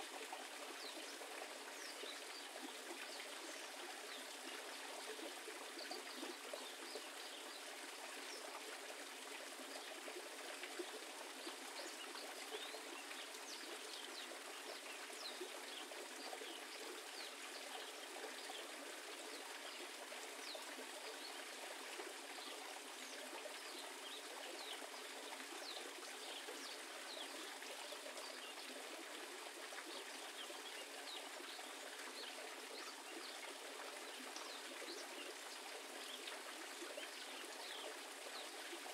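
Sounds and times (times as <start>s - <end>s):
trickling stream water: 0.0s - 38.9s.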